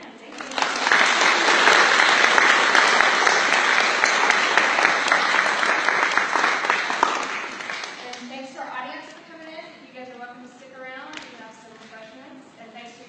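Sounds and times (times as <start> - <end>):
audience applauding: 0.3 - 8.3.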